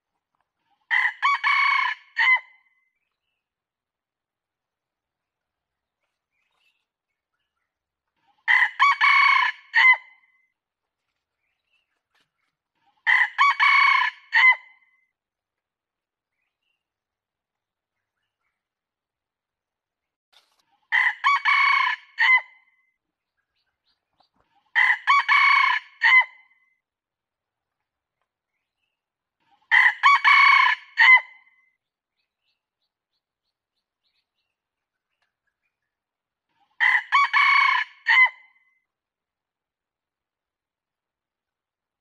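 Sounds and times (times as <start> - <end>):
rooster crowing: 8.5 - 10.0, 13.1 - 14.6, 21.0 - 22.5, 29.7 - 31.3, 36.8 - 38.4.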